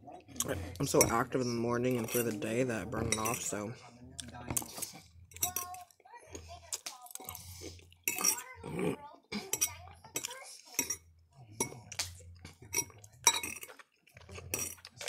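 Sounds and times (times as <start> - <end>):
fork clinking on ceramic plate: 3.1 - 3.5, 4.6 - 5.9, 8.0 - 8.5, 9.4 - 13.8.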